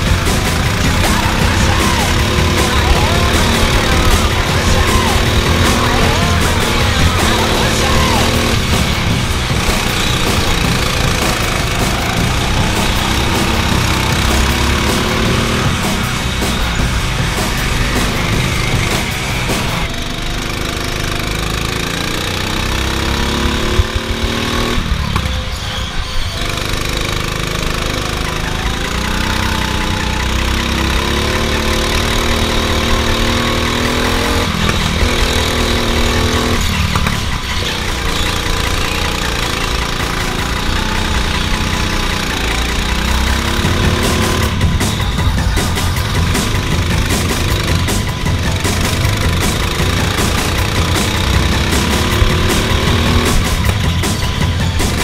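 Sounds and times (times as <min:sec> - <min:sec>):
go-kart motor accelerating: 0:00.0 - 0:55.0.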